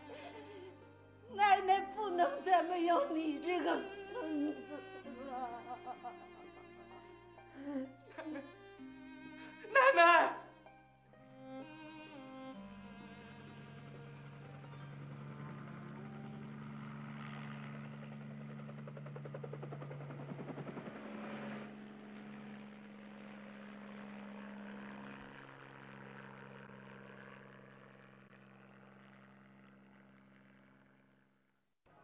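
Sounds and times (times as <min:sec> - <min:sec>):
sustained low string chords: 0:02.4 - 0:16.3.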